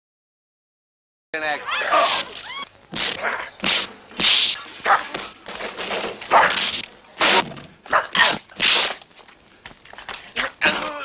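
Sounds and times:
punch and slap sound effects: 2.0s - 4.6s, 6.4s - 7.5s, 8.2s - 9.0s.

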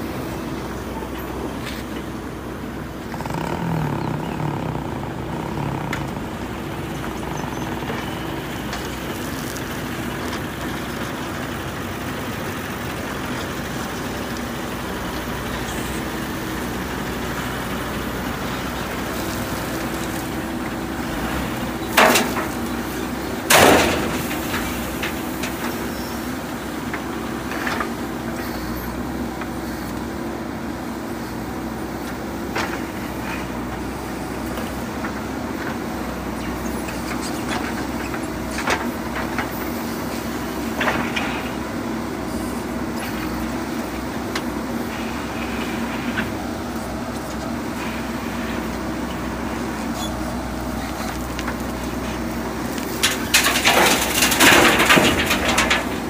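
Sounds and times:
diesel engines running: 0.0s - 56.0s
stone crashing into metal truck body: 23.5s - 24.9s, 53.0s - 56.0s.

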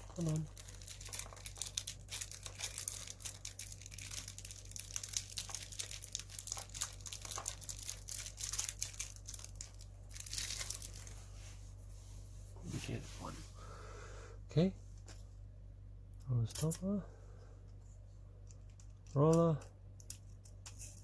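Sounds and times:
plastic packet crinkling: 0.0s - 11.2s
low steady hum: 0.0s - 21.0s.

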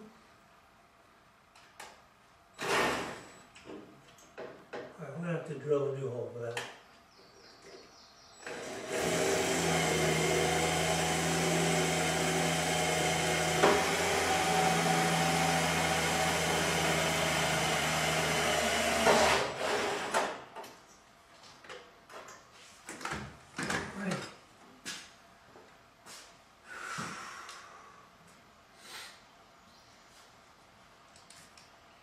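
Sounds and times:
electric drill running: 8.4s - 20.3s.

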